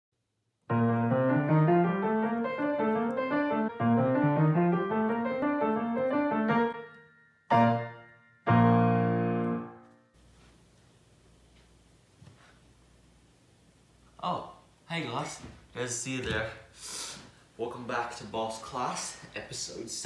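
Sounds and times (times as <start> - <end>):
solo piano music: 0.7 - 10.1.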